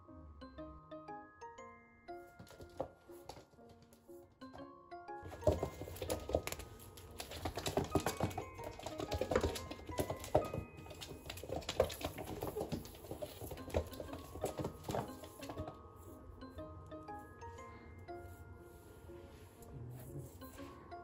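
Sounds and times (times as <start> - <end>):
toy slapping floorboards: 2.4 - 4.1, 5.2 - 15.8
kitten paws scrabbling on floor: 5.2 - 15.8.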